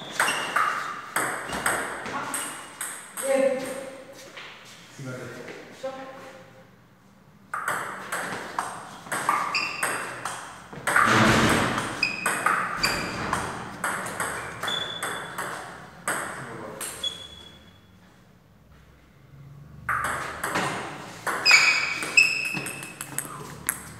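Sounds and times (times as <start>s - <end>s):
table tennis ball clicking: 22.2s - 23.9s.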